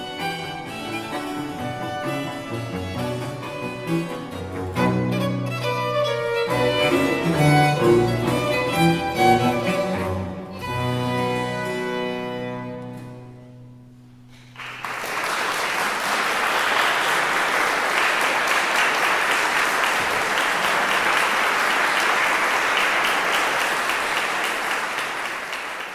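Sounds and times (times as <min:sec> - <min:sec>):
baroque chamber ensemble chord: 0:00.0 - 0:14.3
audience applause: 0:14.3 - 0:25.9.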